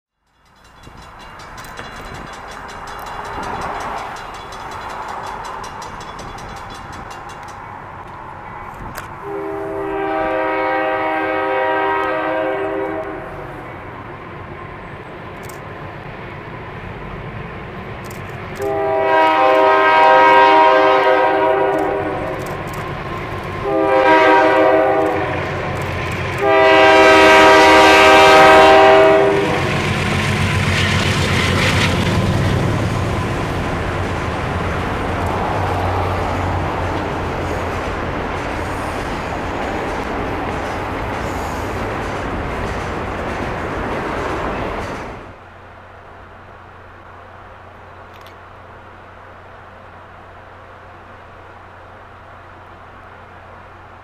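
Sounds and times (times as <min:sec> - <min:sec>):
diesel locomotives rumbling: 0:00.2 - 0:54.0
locomotive air horn blasts: 0:09.2 - 0:13.6, 0:18.6 - 0:22.4, 0:23.6 - 0:25.6, 0:26.4 - 0:29.7.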